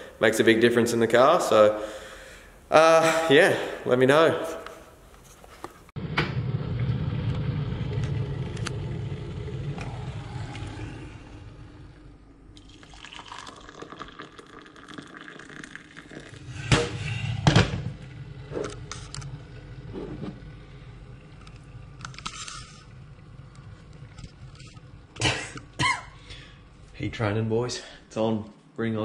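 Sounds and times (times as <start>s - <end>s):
electric kettle rumbling: 6.0s - 27.0s
water pouring into mug: 12.5s - 16.6s.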